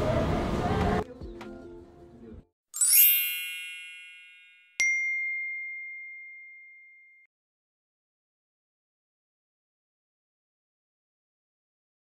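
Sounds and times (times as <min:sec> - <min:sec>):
sweep of bright chimes: 0:02.8 - 0:07.3.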